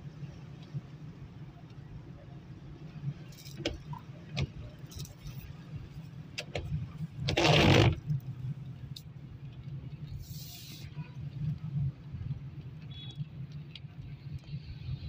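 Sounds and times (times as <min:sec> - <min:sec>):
car engine and road hum: 0:00.0 - 0:15.0.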